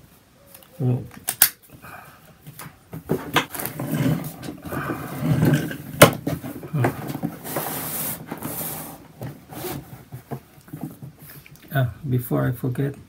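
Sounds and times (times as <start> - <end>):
plastic hose reel scraping: 3.1 - 11.2.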